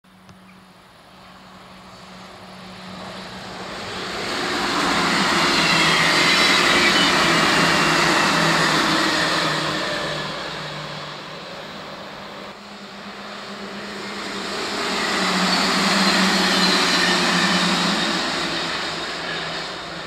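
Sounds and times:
train passing: 0:00.1 - 0:20.0.

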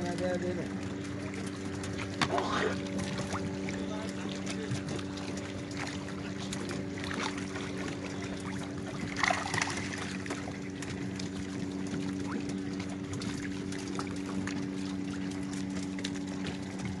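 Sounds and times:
steady low hum: 0:00.0 - 0:17.0
water lapping against boats: 0:00.0 - 0:17.0
loud splash: 0:06.9 - 0:10.5.

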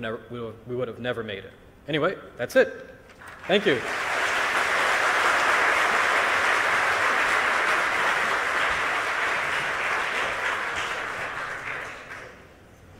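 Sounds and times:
audience applause: 0:03.2 - 0:12.5.

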